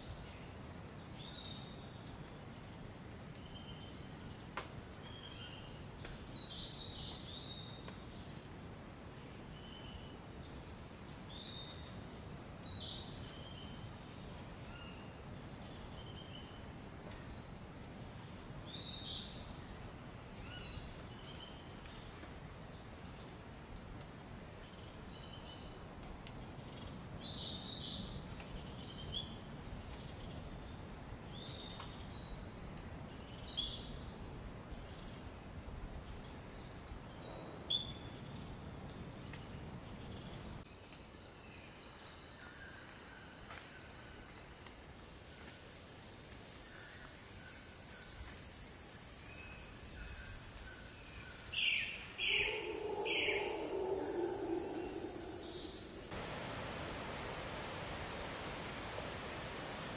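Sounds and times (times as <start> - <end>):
loud high insect drone: 43.9 - 59.9
insect trilling: 45.2 - 59.9
bird chirps: 51.6 - 56.1.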